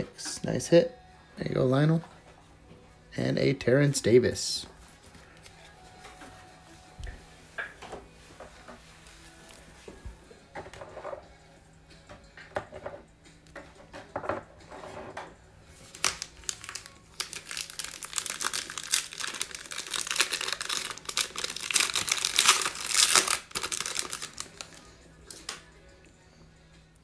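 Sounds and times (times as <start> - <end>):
foil wrapper crinkling and tearing: 15.8 - 25.5.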